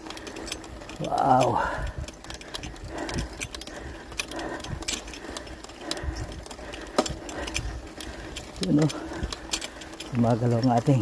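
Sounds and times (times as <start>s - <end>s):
bicycle derailleur rattling: 0.0s - 11.0s.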